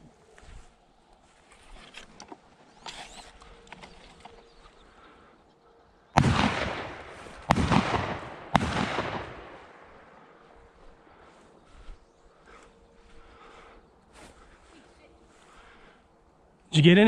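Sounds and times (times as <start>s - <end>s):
shotgun shots with echo: 6.2s - 10.1s.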